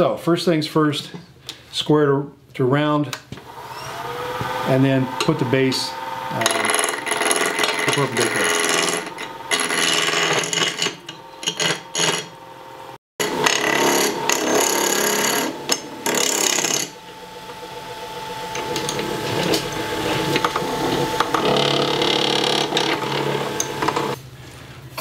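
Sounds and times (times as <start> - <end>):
lathe motor hum: 3.4 - 10.5, 12.6 - 24.2
gouge cutting wood on lathe: 3.6 - 10.6, 13.2 - 24.2.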